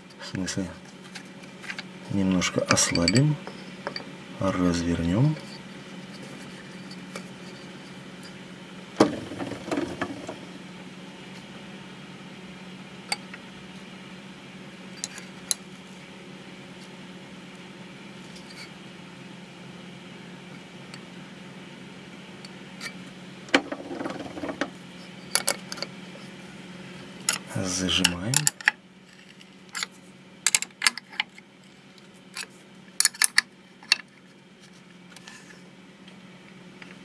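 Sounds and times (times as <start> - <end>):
steady low hum: 0.0 - 37.0
spanner clinking on bolt: 2.6 - 3.3.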